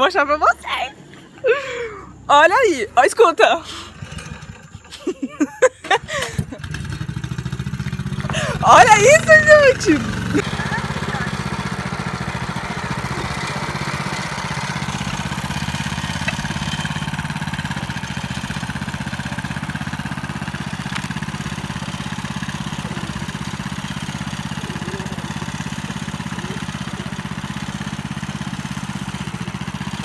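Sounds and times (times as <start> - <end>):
small tractor engine running: 1.6 - 30.0.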